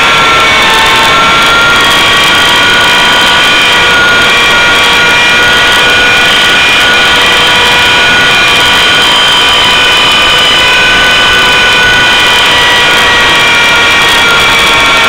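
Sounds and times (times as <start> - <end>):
model helicopter whine: 0.0 - 15.0.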